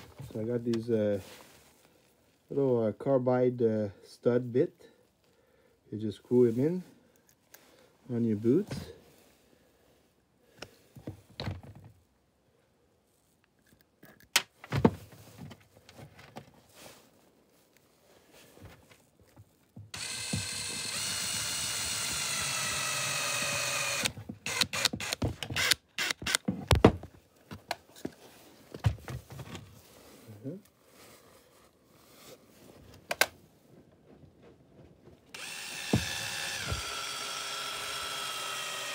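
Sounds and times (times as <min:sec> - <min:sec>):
power drill-driver whining: 0:19.9 - 0:26.5, 0:35.3 - 0:38.9
sharp clicks and knocks: 0:23.3 - 0:27.8.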